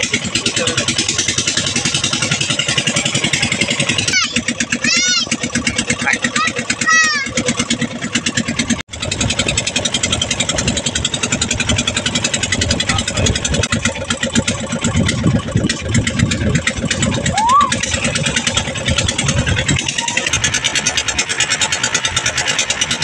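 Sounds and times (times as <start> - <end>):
boat engine chugging: 0.0 - 23.0.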